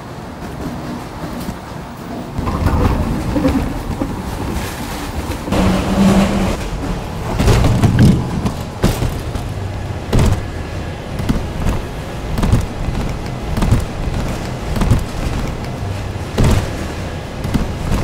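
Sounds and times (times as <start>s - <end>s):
conveyor rumble and motor hum: 0.0s - 18.0s
suitcase clunking and knocking: 5.5s - 18.0s.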